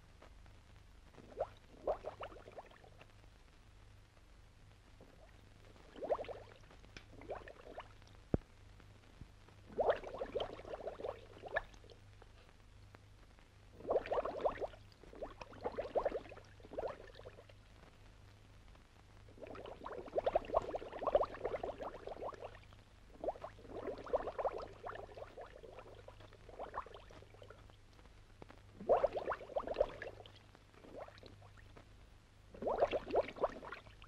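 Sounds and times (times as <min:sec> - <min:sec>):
underwater exhaled air bubbles: 0:01.2 - 0:03.0, 0:05.0 - 0:08.0, 0:09.7 - 0:12.0, 0:13.7 - 0:17.6, 0:19.3 - 0:27.8, 0:28.8 - 0:31.7, 0:32.6 - 0:34.0.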